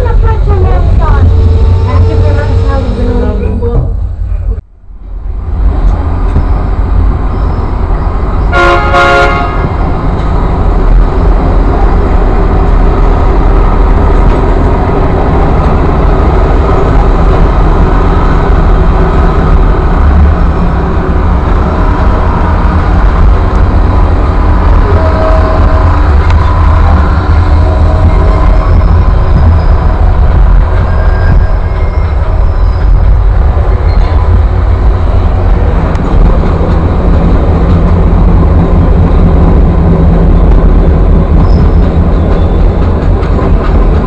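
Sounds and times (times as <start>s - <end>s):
train horn toot: 0.0s - 3.4s, 8.5s - 9.8s, 24.8s - 29.9s
train rumbling: 0.0s - 44.0s
wind buffeting microphone: 9.5s - 44.0s.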